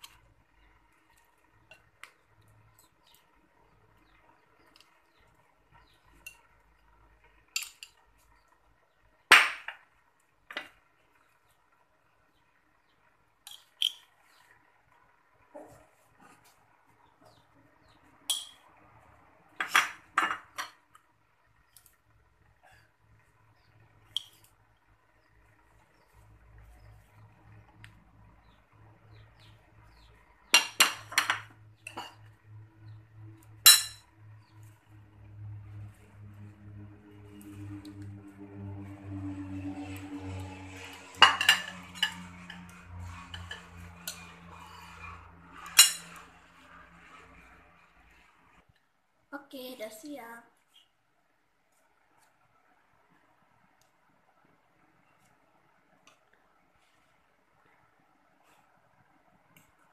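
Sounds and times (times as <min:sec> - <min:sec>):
dishes and utensils clinking: 0:18.3 - 0:18.6, 0:41.0 - 0:46.3.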